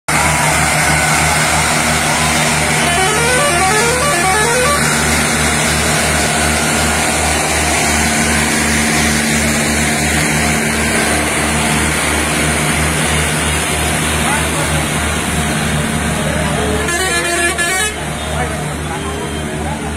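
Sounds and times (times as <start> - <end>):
tractor diesel engine: 0.1 - 19.9
rising horn notes: 0.7 - 8.4.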